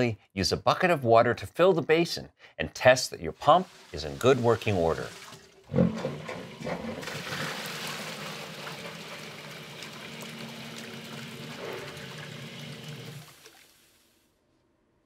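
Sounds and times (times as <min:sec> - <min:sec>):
water rushing through pipe: 0:03.4 - 0:14.0
water splashing into basin: 0:03.5 - 0:14.0
sump pump humming: 0:05.2 - 0:13.6.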